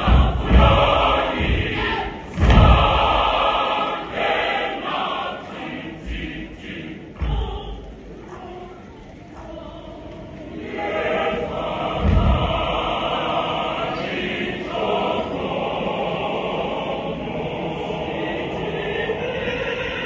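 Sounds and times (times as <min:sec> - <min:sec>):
heavy thump: 0:00.0 - 0:03.5, 0:11.9 - 0:12.9
large choir singing: 0:00.0 - 0:20.0.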